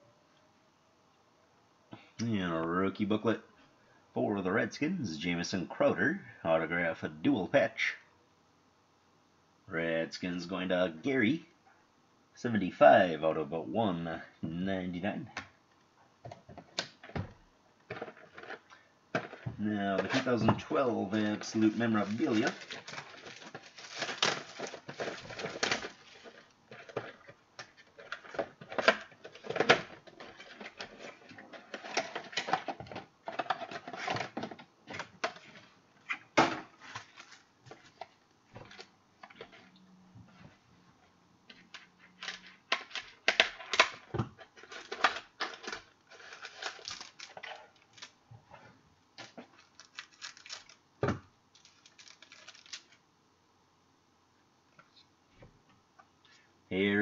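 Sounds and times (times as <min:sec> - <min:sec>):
cards shuffling: 0:17.9 - 0:32.6, 0:41.5 - 0:48.2, 0:49.2 - 0:50.8, 0:51.6 - 0:53.0
wrappers crinkling and tearing: 0:20.0 - 0:32.6, 0:36.8 - 0:38.0, 0:44.6 - 0:48.2, 0:49.2 - 0:50.8, 0:51.5 - 0:53.0.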